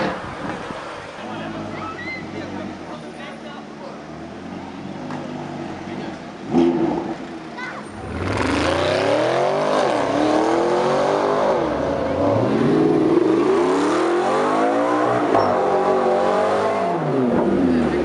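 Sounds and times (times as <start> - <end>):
sports car engine accelerating: 4.1 - 18.0.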